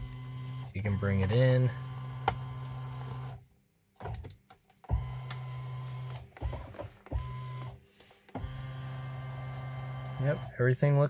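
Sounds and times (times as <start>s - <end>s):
electric motor whirring: 4.9s - 10.5s.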